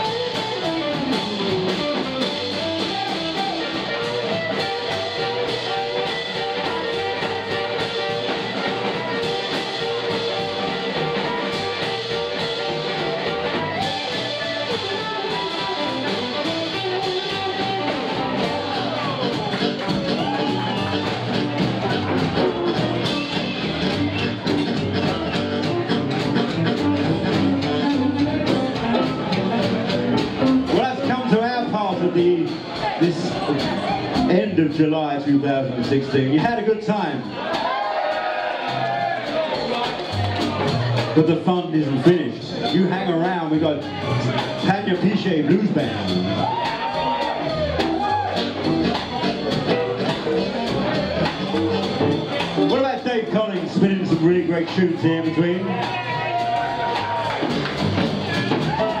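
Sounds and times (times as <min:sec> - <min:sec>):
blues harmonica: 0:00.0 - 0:31.8
blues band playing: 0:00.0 - 0:59.0
electric guitar: 0:00.0 - 0:59.0.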